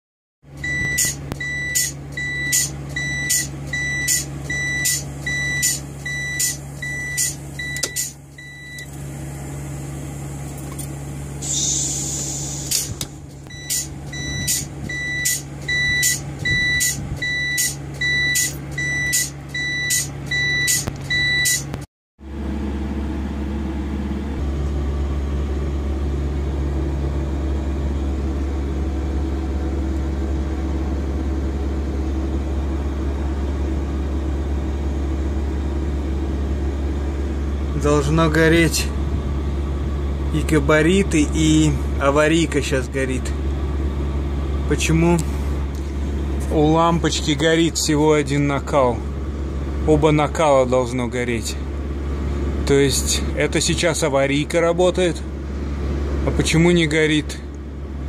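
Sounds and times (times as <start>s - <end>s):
hazard flasher beeping: 0.6s - 8.9s, 13.5s - 21.8s.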